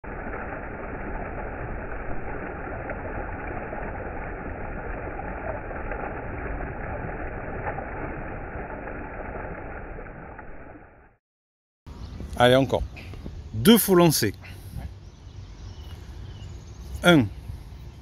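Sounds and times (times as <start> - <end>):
low rumble: 0.0 - 11.2.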